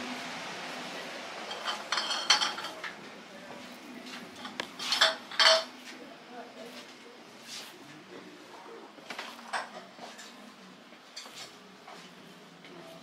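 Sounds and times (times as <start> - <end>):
pottery dishes clinking: 1.4 - 3.0, 4.3 - 5.9, 9.2 - 10.4.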